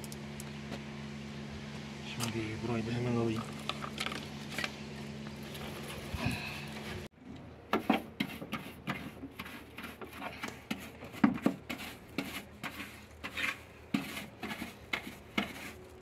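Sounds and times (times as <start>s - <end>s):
hand brush scrubbing metal: 7.8s - 16.0s.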